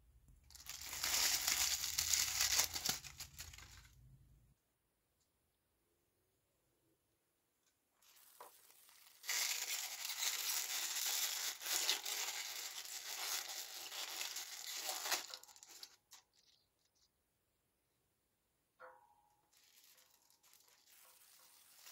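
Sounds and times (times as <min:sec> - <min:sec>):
crinkly wrapping torn and crumpled: 0:00.5 - 0:04.1, 0:08.0 - 0:17.0, 0:19.5 - 0:21.9.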